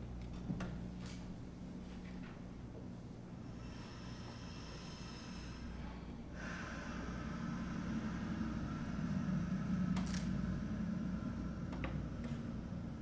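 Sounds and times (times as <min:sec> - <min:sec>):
soft breathy saxophone: 0:03.4 - 0:13.0.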